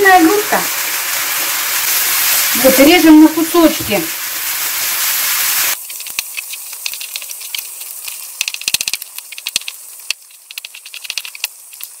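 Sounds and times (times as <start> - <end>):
faint hiss: 0.0 - 12.0
frying pan sizzle: 0.0 - 12.0.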